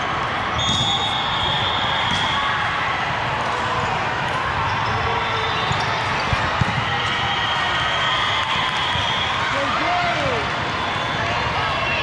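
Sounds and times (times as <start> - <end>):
high whistle: 0.6 - 2.5
volleyballs struck and bouncing: 2.0 - 5.0, 5.6 - 7.2.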